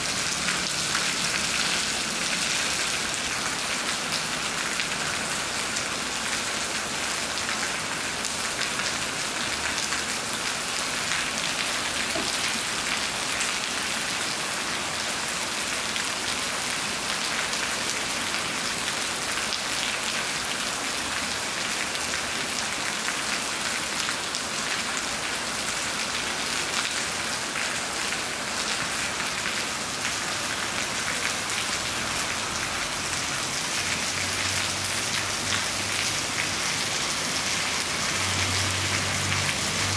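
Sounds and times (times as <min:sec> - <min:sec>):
rain falling on concrete: 0:00.0 - 0:39.9.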